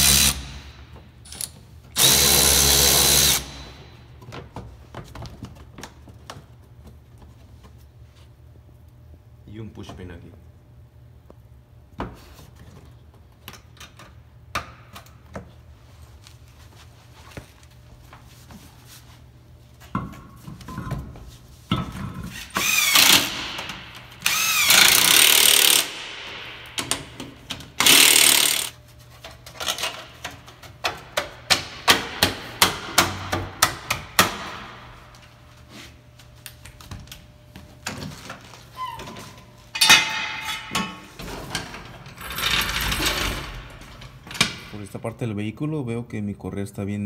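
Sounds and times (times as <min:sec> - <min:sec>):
power tool motor whine: 0:22.6 - 0:23.3, 0:24.2 - 0:25.9, 0:27.8 - 0:28.7.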